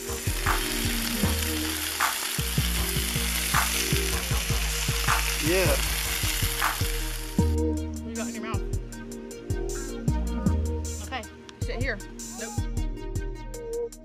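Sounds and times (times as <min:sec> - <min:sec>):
food sizzling on a griddle: 0:00.0 - 0:07.5.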